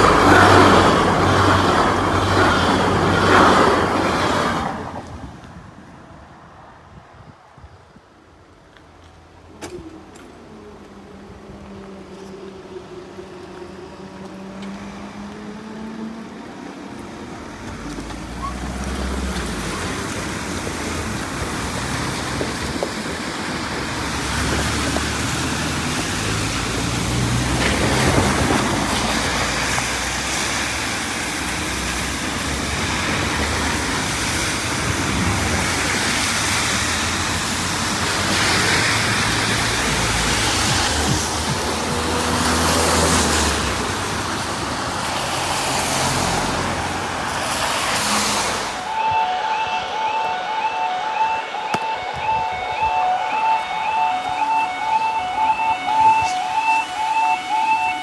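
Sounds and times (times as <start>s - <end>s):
car engines running: 0.0s - 5.2s, 8.2s - 48.9s
tyres hissing on wet road: 0.0s - 6.0s, 8.3s - 49.6s.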